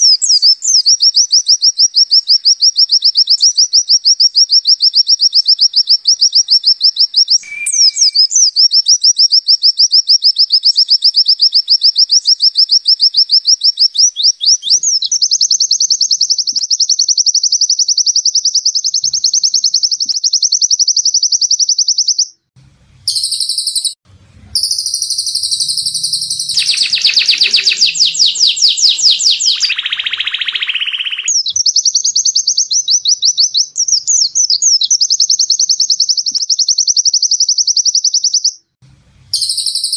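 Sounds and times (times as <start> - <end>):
bird singing high trill: 0.0 - 22.4, 23.1 - 24.0, 24.6 - 38.6, 39.3 - 39.9
busy birdsong: 5.9 - 8.7, 23.1 - 36.4.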